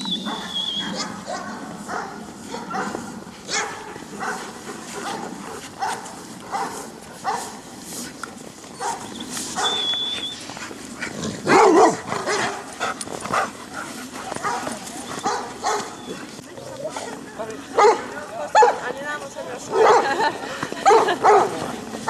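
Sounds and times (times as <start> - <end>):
dogs barking: 0.0 - 7.6, 8.8 - 9.8, 11.4 - 16.3, 17.7 - 18.9, 19.7 - 21.7.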